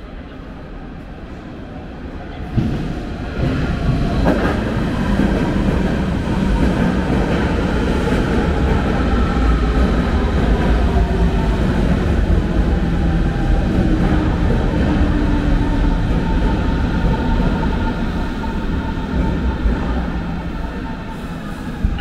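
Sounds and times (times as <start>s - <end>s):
electric train rumbling: 0.0s - 22.0s.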